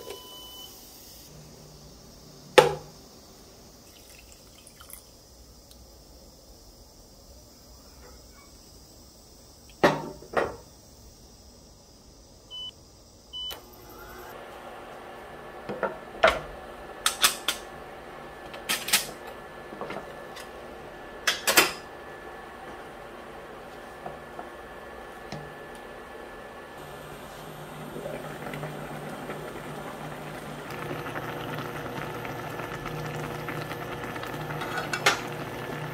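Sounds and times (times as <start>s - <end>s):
cooktop electrical hum: 0.0s - 35.9s
short beeps: 12.5s - 12.7s.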